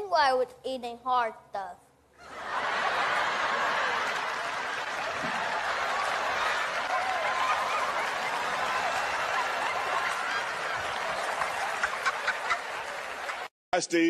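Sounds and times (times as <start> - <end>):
audience laughing: 2.2 - 13.5
audience clapping: 2.3 - 13.5.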